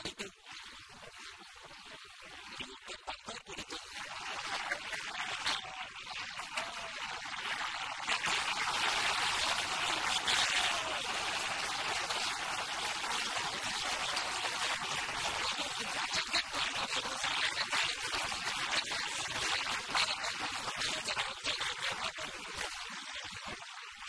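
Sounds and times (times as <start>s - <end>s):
stadium crowd cheering: 4.7s - 16.4s.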